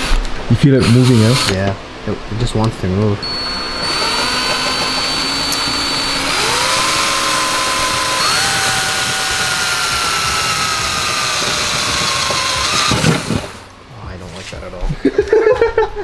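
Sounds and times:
cordless drill whining: 0.8s - 1.6s, 3.2s - 13.7s.

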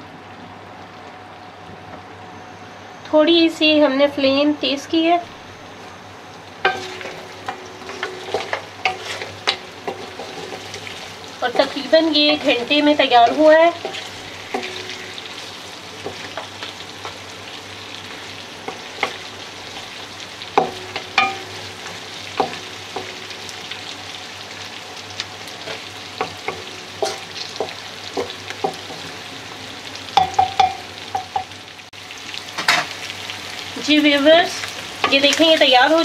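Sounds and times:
meat sizzling in fat: 4.6s - 36.0s
metal pan ringing: 6.6s - 10.7s, 11.4s - 15.4s, 20.6s - 21.7s, 30.2s - 31.6s
wooden spoon knocking on pan: 20.6s - 21.5s, 22.4s - 23.2s, 26.2s - 29.0s, 30.2s - 31.5s.

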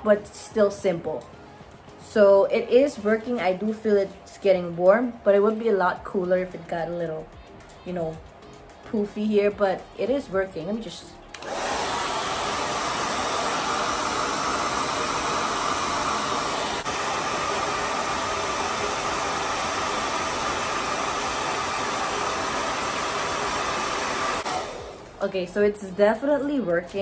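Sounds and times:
hair dryer running: 11.3s - 25.7s.

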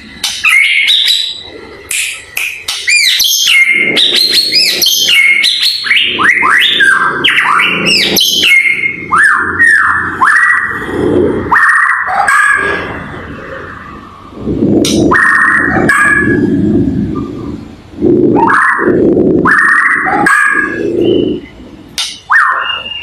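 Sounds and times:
bird singing whistles: 2.8s - 10.6s, 20.8s - 21.6s, 22.4s - 23.0s.

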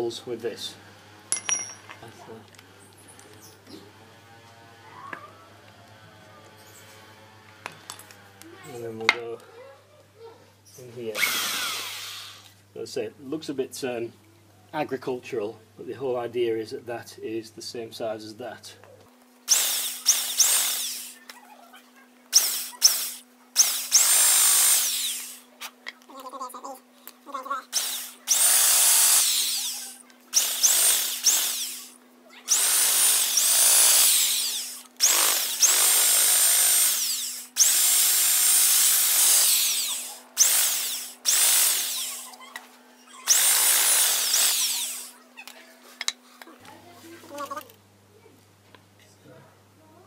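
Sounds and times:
electric drill boring wood: 11.1s - 12.5s, 19.5s - 21.2s, 22.3s - 25.5s, 27.7s - 42.4s, 43.2s - 45.2s.

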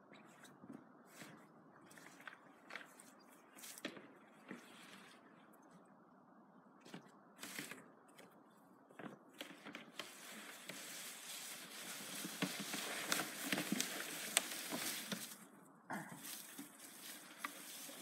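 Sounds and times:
sled sliding through dry brush: 9.4s - 15.5s, 16.2s - 18.0s.

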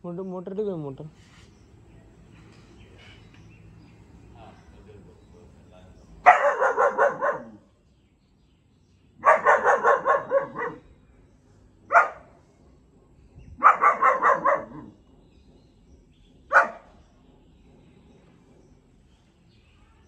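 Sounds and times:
puppy yapping barks: 6.2s - 7.6s, 9.2s - 10.8s, 11.9s - 12.3s, 13.6s - 14.9s, 16.5s - 16.9s.

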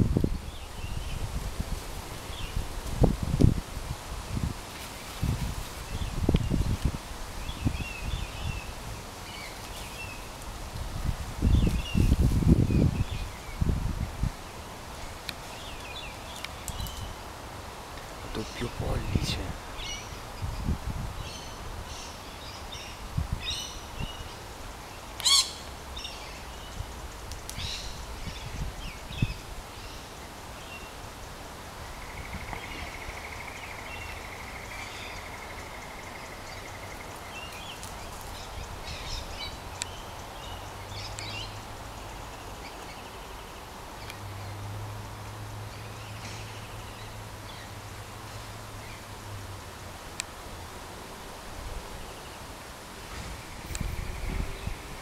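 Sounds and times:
birds calling: 18.1s - 31.2s.

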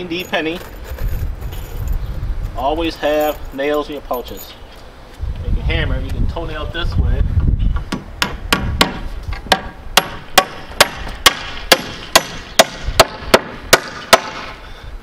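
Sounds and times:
hammer driving nail into wood: 7.9s - 14.6s.

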